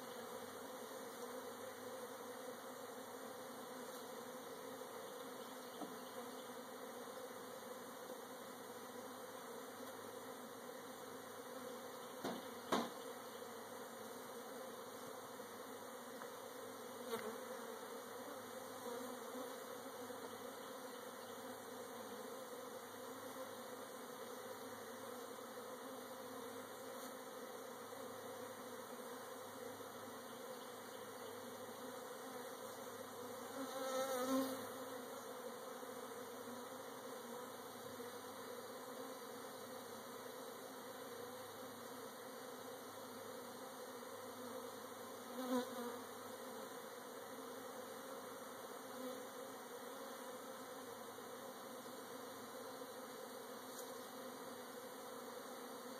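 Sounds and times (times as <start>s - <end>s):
honey bees buzzing: 0.0s - 55.9s.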